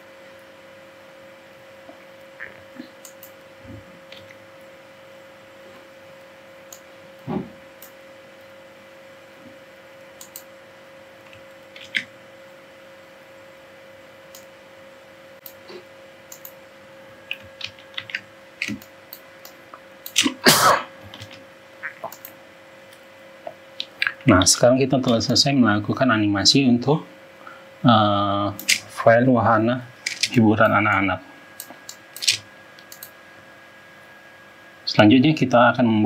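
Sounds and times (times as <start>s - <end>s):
faint steady hum: 0.0s - 36.0s
computer mouse clicks: 3.0s - 3.4s, 6.7s - 6.9s, 10.2s - 10.5s, 11.2s - 12.1s, 14.3s - 14.5s, 16.3s - 16.6s, 17.3s - 20.3s, 21.1s - 23.0s, 31.6s - 33.1s.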